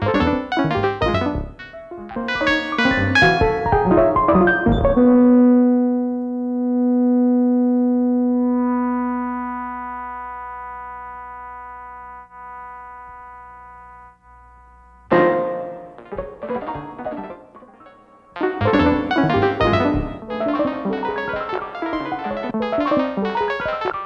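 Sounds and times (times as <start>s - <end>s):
synthesizer electronic music: 0.0s - 5.3s, 15.1s - 24.0s.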